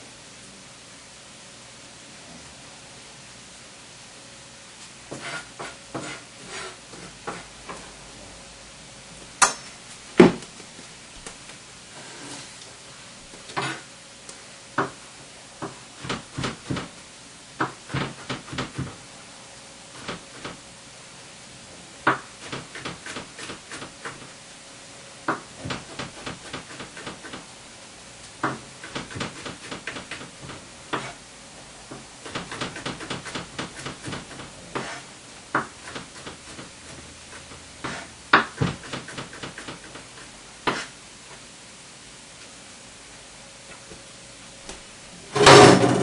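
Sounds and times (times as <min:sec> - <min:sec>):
faint steady hum: 0:00.0 - 0:46.0
utensils knocking on work surface: 0:45.4 - 0:46.0.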